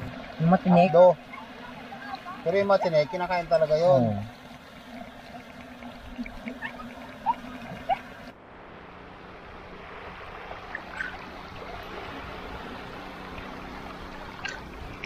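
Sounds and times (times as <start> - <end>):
small waves washing on sandy shore: 6.6 - 15.0.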